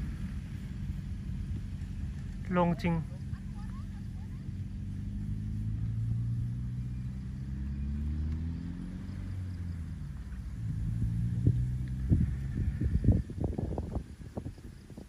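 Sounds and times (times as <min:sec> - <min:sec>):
vehicle engine humming: 0:00.0 - 0:15.0.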